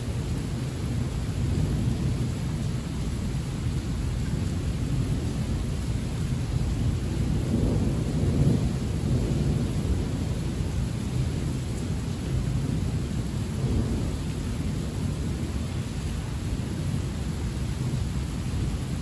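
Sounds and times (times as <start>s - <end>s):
heavy rain hissing: 0.0s - 19.0s
thunder rumbling: 4.9s - 15.8s.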